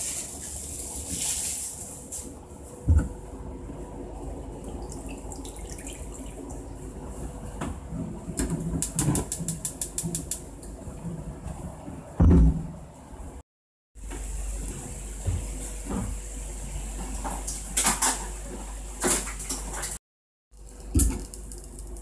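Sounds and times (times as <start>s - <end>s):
sharp ticks: 8.8s - 10.4s.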